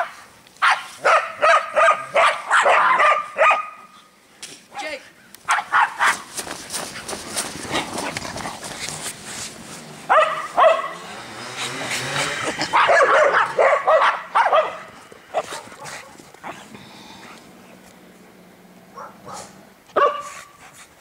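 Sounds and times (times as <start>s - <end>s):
dog barking: 0.0s - 4.0s, 5.5s - 6.3s, 10.1s - 11.0s, 12.7s - 16.1s, 18.9s - 20.6s.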